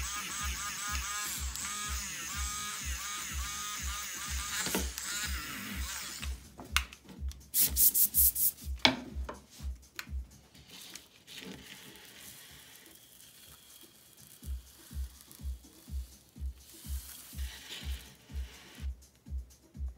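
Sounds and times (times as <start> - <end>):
electronic music with beat: 0.0 - 11.0, 13.8 - 19.9
rubbing strokes on paper: 7.6 - 8.7.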